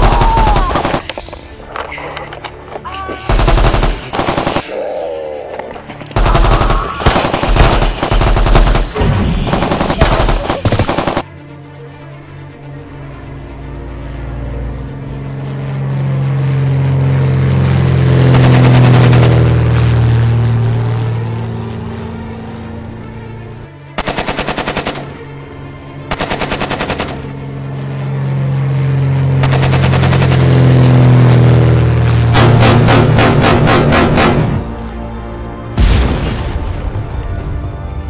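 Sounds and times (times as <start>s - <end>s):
machine-gun fire: 0.0s - 1.0s, 3.3s - 4.7s, 6.2s - 11.2s, 18.2s - 19.5s, 24.0s - 25.2s, 26.1s - 27.3s, 29.4s - 30.8s, 32.3s - 34.7s
propeller plane engine droning: 0.0s - 35.8s.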